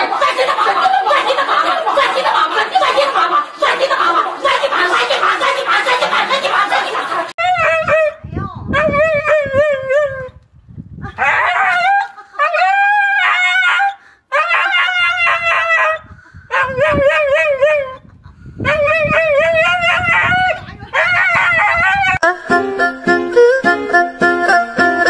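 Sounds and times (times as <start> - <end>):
dog howl-barking: 7.4 - 10.3, 11.2 - 18.0, 18.6 - 22.2.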